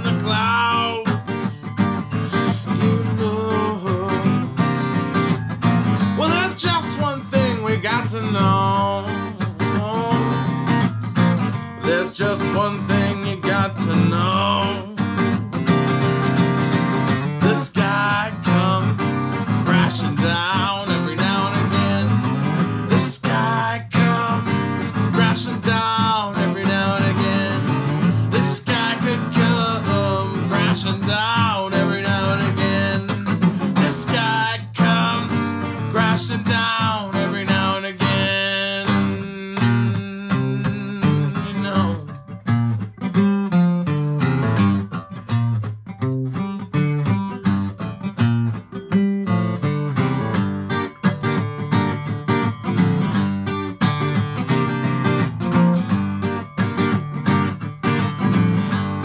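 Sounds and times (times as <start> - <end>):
man singing slow song: 0.0 - 1.5, 2.1 - 4.6, 6.0 - 10.8, 11.8 - 15.4, 17.2 - 42.2
acoustic guitar strumming: 0.0 - 59.0.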